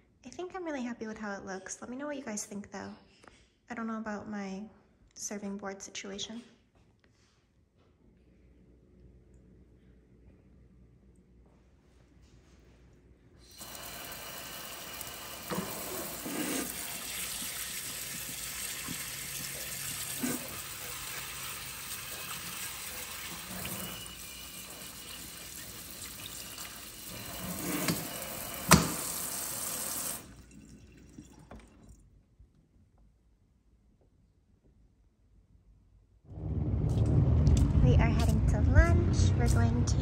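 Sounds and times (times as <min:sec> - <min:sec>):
faucet spraying water: 0:13.4 - 0:31.4.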